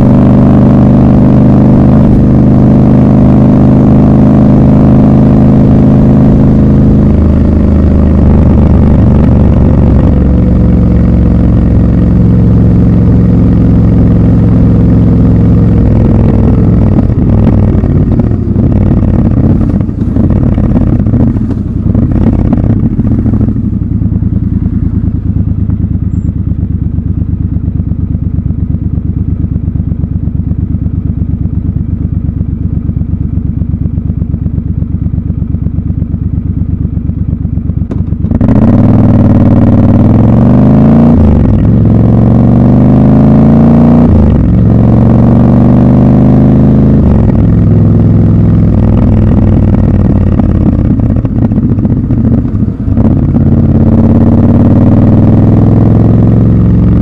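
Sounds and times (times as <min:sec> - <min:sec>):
motorcycle engine running: 0:00.0 - 0:57.0
engine knocks and clicks: 0:12.9 - 0:42.5, 0:47.0 - 0:56.2.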